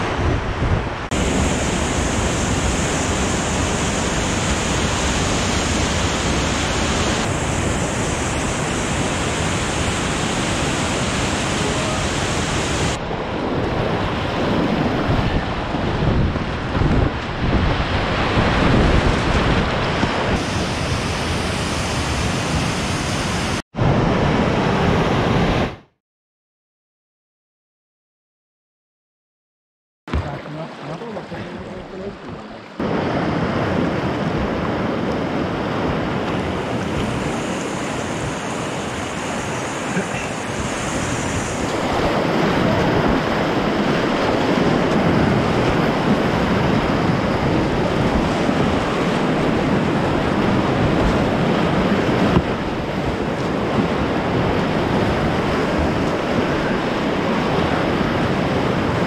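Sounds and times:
whitewater rapids rushing: 1.1s - 15.8s, 30.1s - 59.0s.

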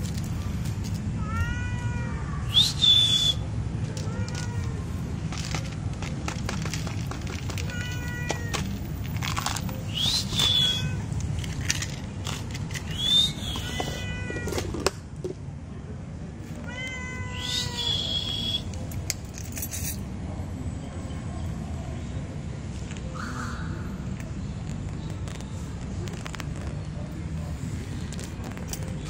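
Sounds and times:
cat meowing: 1.2s - 2.5s, 3.9s - 4.9s, 7.6s - 8.8s, 10.4s - 11.1s, 13.6s - 14.7s, 16.6s - 18.5s.

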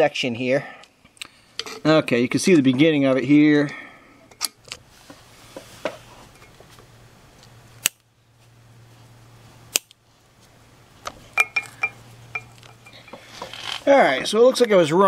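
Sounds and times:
wire cutters snipping: 7.8s - 8.1s, 9.7s - 10.0s.

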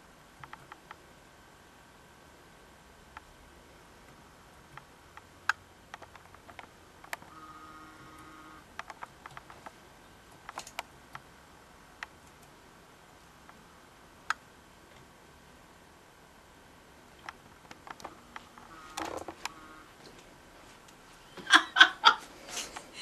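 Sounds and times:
laptop keyboard typing: 0.4s - 1.0s, 4.7s - 11.3s
faint steady tone: 6.8s - 8.8s, 17.9s - 21.4s.

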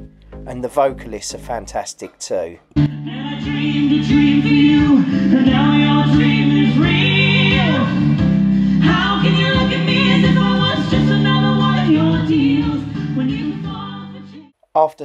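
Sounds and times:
person singing: 3.0s - 8.2s.

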